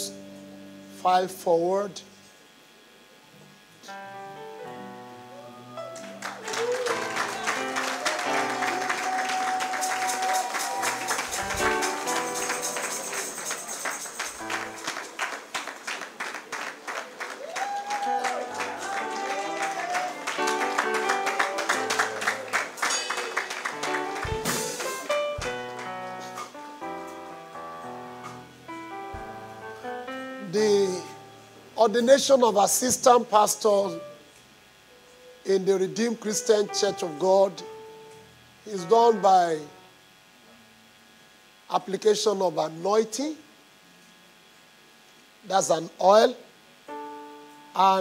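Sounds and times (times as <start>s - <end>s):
congregation clapping in rhythm: 5.9s - 26.6s
church praise music with beat: 6.3s - 15.8s, 18.4s - 26.6s
person singing: 6.8s - 13.2s, 18.4s - 22.5s.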